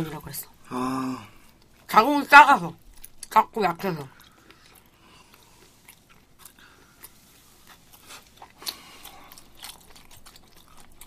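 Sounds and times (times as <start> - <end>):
faint chewing: 1.4 - 1.9, 2.8 - 3.4, 4.1 - 11.0.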